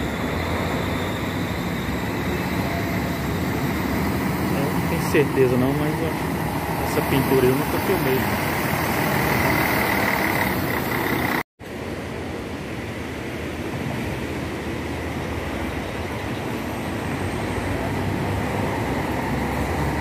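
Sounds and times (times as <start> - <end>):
coach passing with high whine: 0.0 - 11.4
diesel engine rumble: 0.0 - 11.4.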